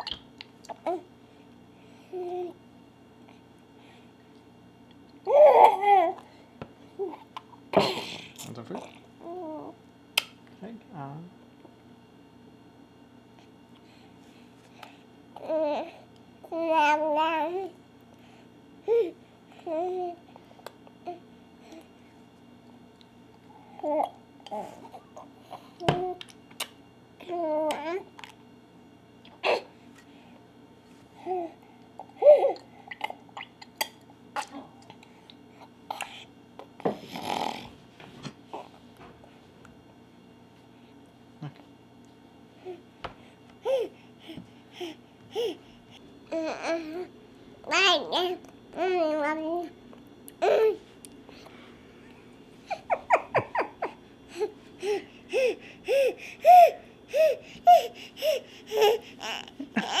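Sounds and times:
baby laughing: 52.7s - 54.0s, 55.3s - 60.0s.

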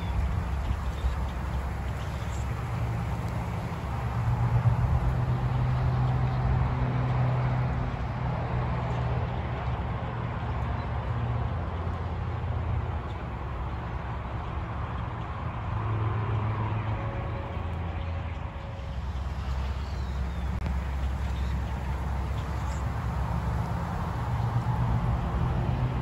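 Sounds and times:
flock of blackbirds chattering: 0.0s - 3.8s, 19.0s - 24.2s.

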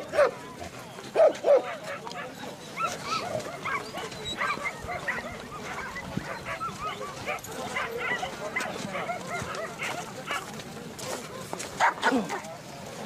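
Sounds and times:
dogs barking: 0.0s - 0.4s, 1.2s - 10.5s, 11.8s - 12.4s.

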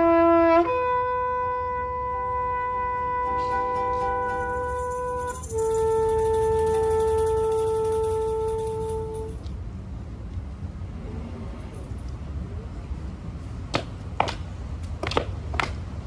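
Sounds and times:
trumpet long held notes: 0.0s - 9.5s.

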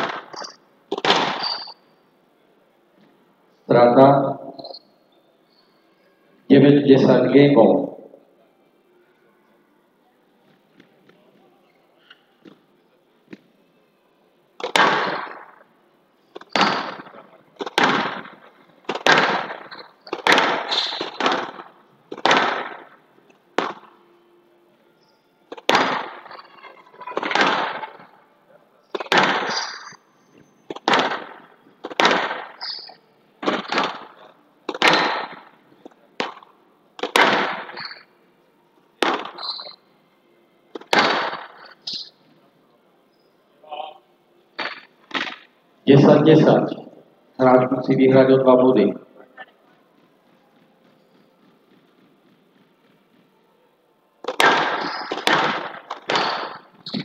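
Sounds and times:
squash ball cracks: 0.0s - 1.7s, 14.6s - 15.6s, 16.3s - 24.0s, 25.5s - 26.5s, 27.1s - 28.0s, 29.0s - 30.0s, 30.7s - 32.8s, 33.4s - 38.0s, 39.0s - 39.6s, 40.7s - 42.0s, 44.6s - 45.5s, 54.2s - 57.0s.

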